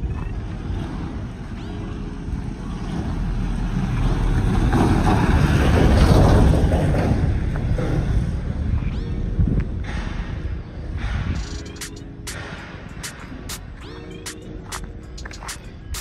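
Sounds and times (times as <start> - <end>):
vehicle passing: 2.2 - 8.7.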